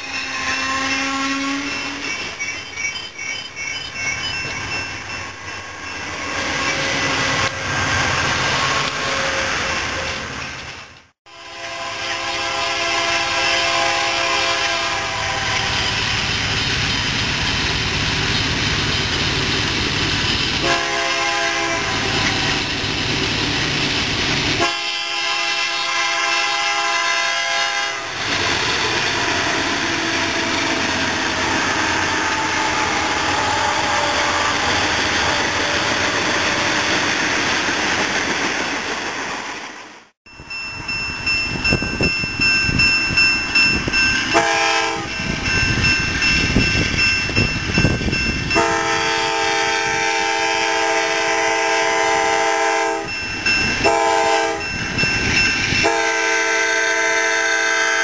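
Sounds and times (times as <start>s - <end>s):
locomotive air horn blasts: 0.0s - 2.0s, 11.3s - 16.0s, 20.6s - 22.6s, 24.6s - 28.2s, 44.3s - 45.1s, 48.6s - 53.1s, 53.8s - 54.7s, 55.8s - 58.0s
pulsing ringing: 0.0s - 6.8s
freight train rolling past: 0.0s - 58.0s.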